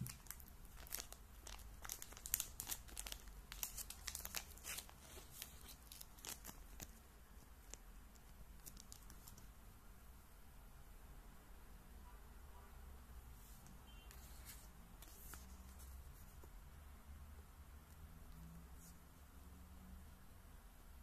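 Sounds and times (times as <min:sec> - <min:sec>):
plastic bag crinkling: 0:00.0 - 0:06.9.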